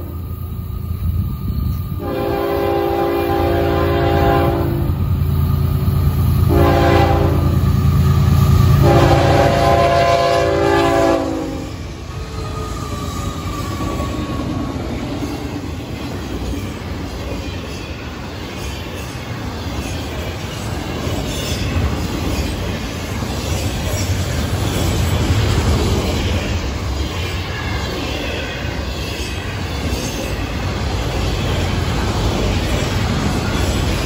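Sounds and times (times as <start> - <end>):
rolling clatter of train cars: 0.0 - 34.0
train horn blasts: 2.0 - 5.0, 6.4 - 7.6, 8.8 - 11.8.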